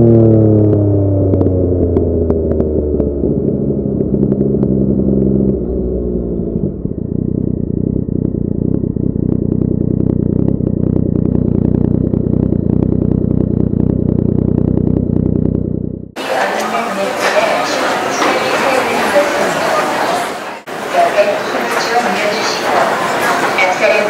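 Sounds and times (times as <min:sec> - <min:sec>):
motorcycle engine revving and idling: 0:00.0 - 0:16.2.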